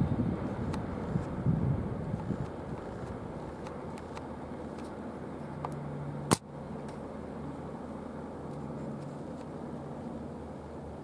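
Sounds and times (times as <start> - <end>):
train rumbling on rails: 0.0 - 4.0.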